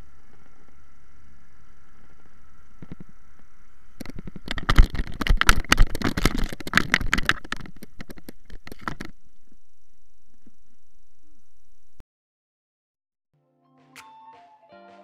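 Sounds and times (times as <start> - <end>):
tall grass rustling and crackling: 0.0 - 12.0
dense irregular clicks: 2.8 - 9.2.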